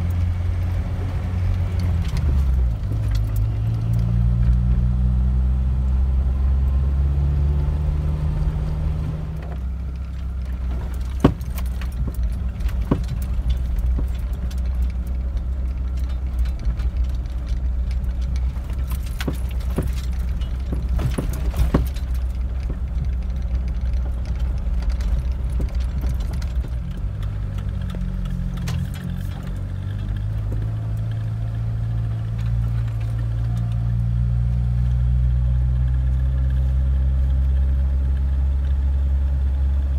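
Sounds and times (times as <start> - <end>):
engine and road drone: 0.0 - 39.9
loose items clinking and rattling: 10.2 - 31.2.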